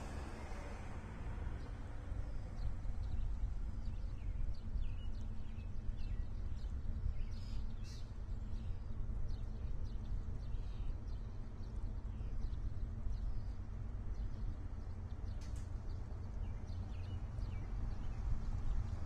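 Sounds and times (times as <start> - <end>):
low steady rumble: 0.0 - 19.0.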